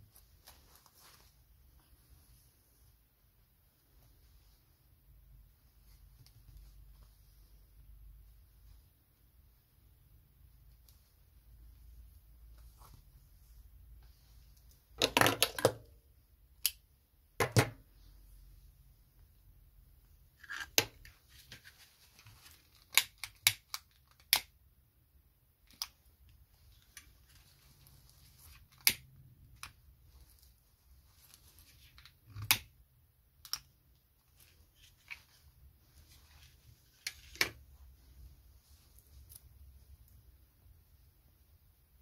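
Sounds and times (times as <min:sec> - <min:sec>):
satin fabric rustling: 0:00.0 - 0:15.0, 0:21.1 - 0:22.8, 0:34.0 - 0:42.0.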